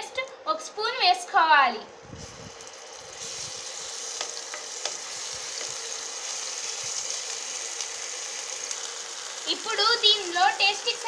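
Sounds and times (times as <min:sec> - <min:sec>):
paste sizzling in hot oil: 0:02.2 - 0:11.0.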